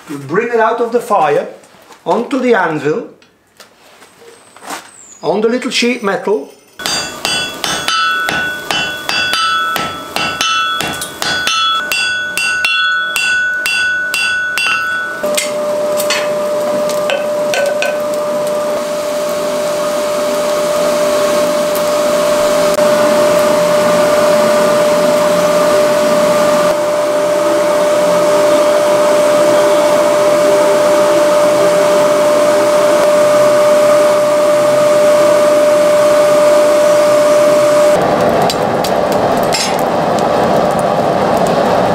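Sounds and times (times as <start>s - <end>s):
forge fire and blower humming: 0.0s - 41.9s
hammer striking iron on anvil: 6.8s - 18.1s, 39.5s - 39.8s.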